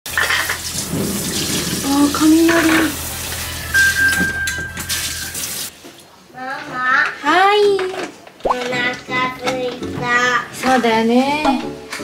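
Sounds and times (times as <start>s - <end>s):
tap running into a sink: 0.1s - 5.7s.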